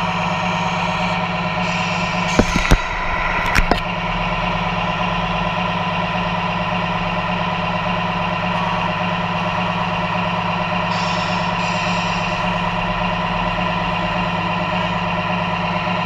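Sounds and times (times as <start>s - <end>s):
diesel truck engine idling: 0.0s - 16.0s
hiss: 1.6s - 2.6s, 10.9s - 12.4s.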